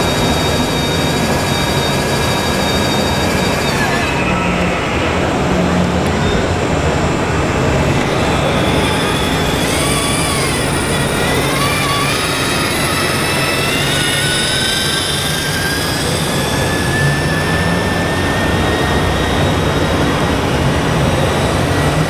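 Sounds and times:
electric motor whining: 7.6 - 22.0.

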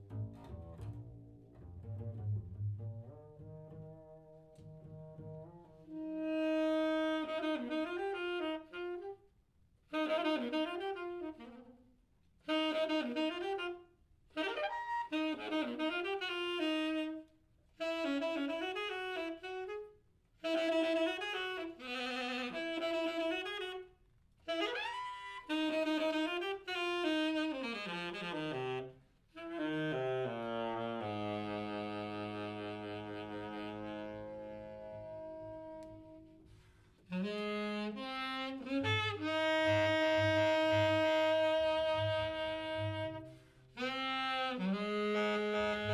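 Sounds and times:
saxophone with sliding pitch: 1.6 - 9.2, 9.9 - 11.8, 12.4 - 45.9.

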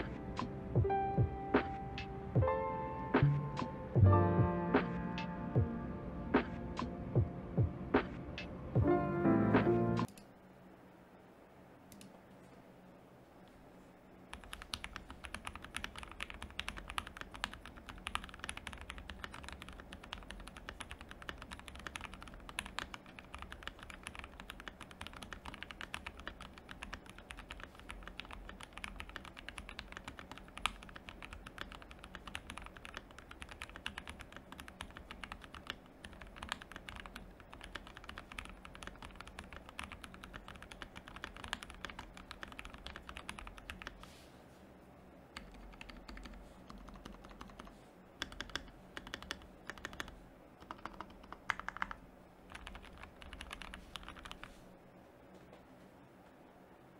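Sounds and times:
mechanical keyboard typing: 14.3 - 44.0, 45.4 - 54.5.

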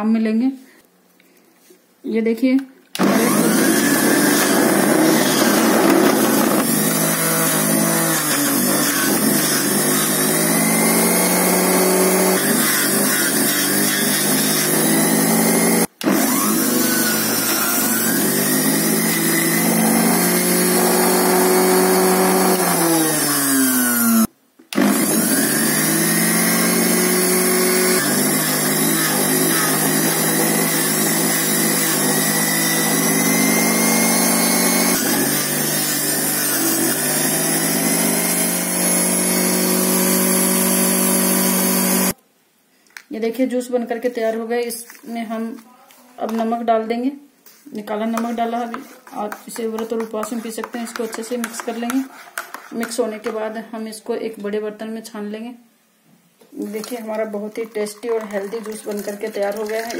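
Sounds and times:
electric juicer motor whine: 3.0 - 42.2.

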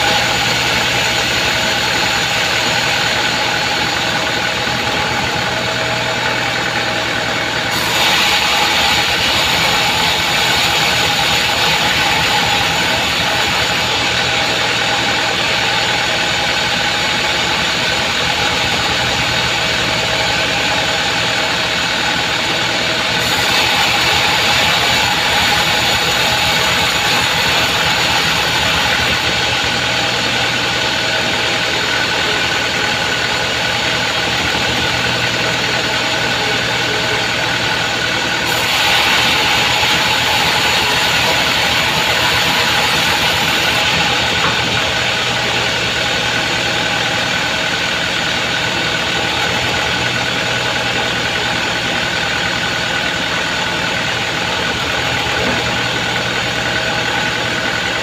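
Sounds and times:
band saw machine hum: 0.0 - 58.0
saw blade hissing: 7.6 - 19.6, 23.0 - 31.2, 38.4 - 47.5.

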